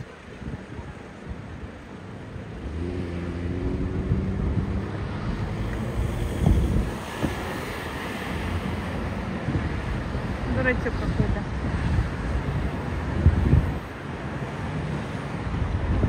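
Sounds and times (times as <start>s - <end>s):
low street rumble: 0.0s - 16.0s
wind buffeting microphone: 0.0s - 16.0s.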